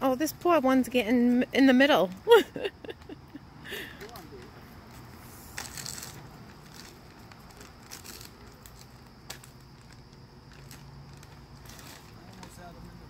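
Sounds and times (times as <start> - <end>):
plastic bag crinkling: 5.5 - 12.6.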